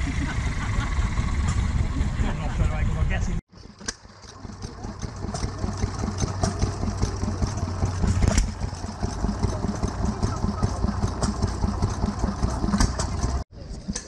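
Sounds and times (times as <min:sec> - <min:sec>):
stationary engine chugging: 0:03.9 - 0:13.5.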